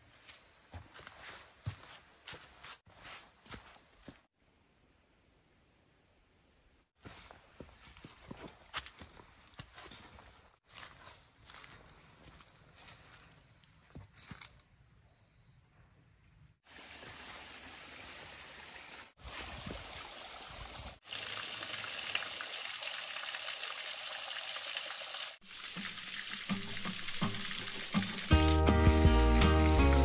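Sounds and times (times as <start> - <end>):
footsteps on dry leaves: 0.0 - 4.3, 7.0 - 14.5
waterfall spattering into pool: 16.7 - 28.6.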